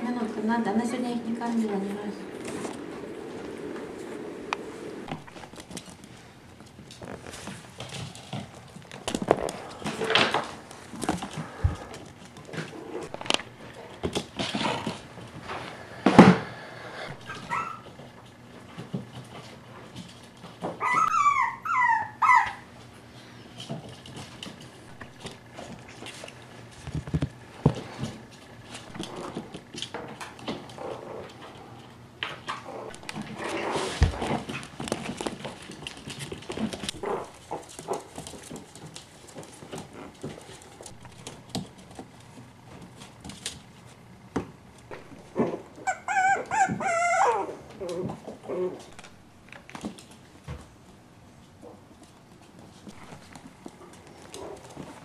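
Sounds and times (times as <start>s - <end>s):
puppy claws clicking on floor: 5.1s - 15.4s, 23.5s - 50.6s
puppies whining: 17.0s - 18.0s, 20.6s - 22.8s, 45.0s - 49.2s.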